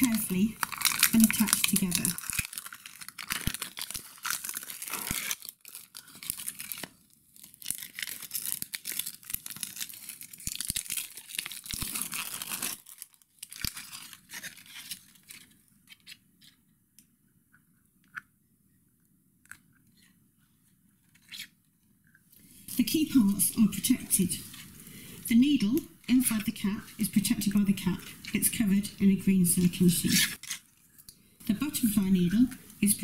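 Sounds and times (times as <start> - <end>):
packaging crinkling rustle: 0.0 - 16.6.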